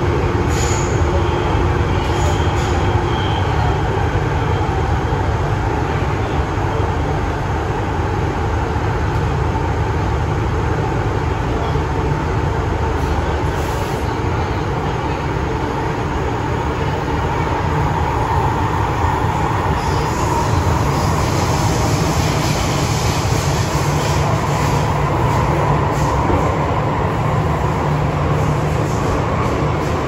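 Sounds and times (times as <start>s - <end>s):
train hum: 0.0s - 30.0s.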